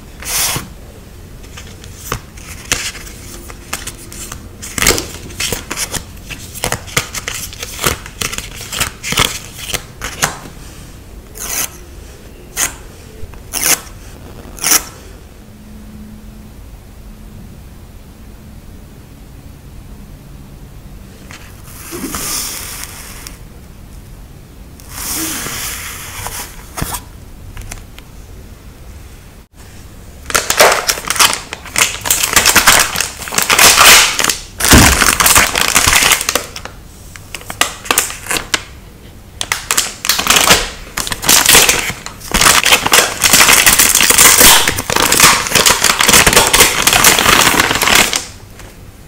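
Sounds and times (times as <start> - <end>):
paper rustling: 1.4 - 10.4
stickers crinkling and crackling: 30.3 - 38.7, 39.4 - 48.3.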